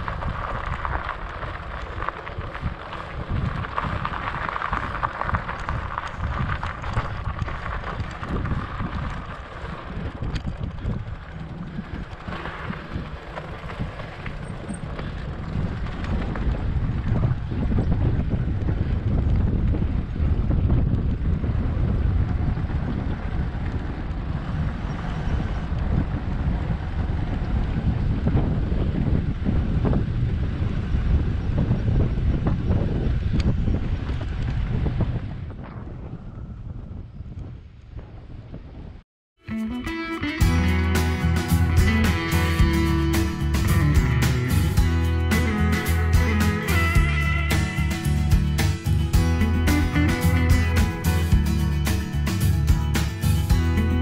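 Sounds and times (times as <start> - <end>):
bike tyres rolling on gravel: 0.0 - 38.8, 40.4 - 54.0
wind buffeting microphone: 0.0 - 39.0.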